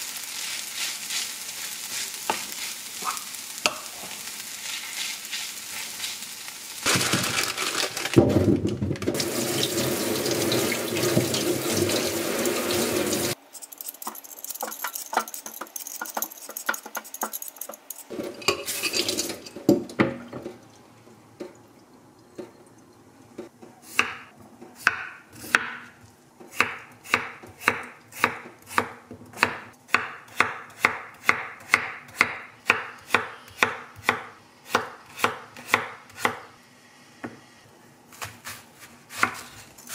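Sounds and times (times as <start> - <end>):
tap water running into sink: 9.0 - 13.4
dishes clattering: 18.1 - 20.6
knife chopping on wooden board: 23.9 - 25.8, 26.4 - 36.4, 38.1 - 39.6.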